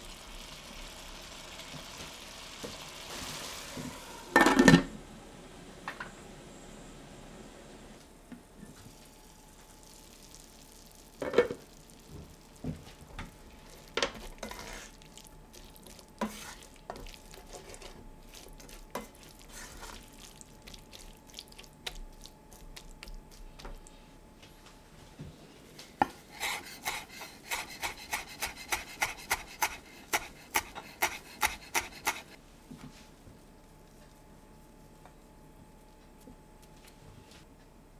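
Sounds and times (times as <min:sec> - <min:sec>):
spatula stirring in a pan: 0:13.6 - 0:23.9, 0:26.0 - 0:32.4.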